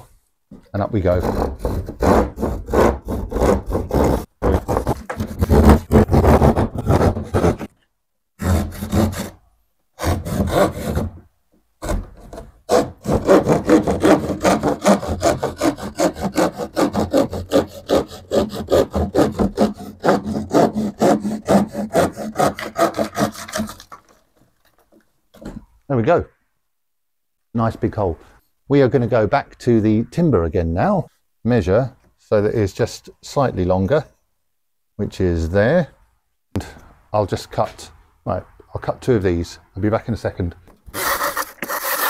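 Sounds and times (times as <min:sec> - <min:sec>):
hand saw cutting plasterboard: 0:01.0 - 0:07.7, 0:08.4 - 0:09.4, 0:10.0 - 0:11.2, 0:11.8 - 0:24.2, 0:40.9 - 0:42.0.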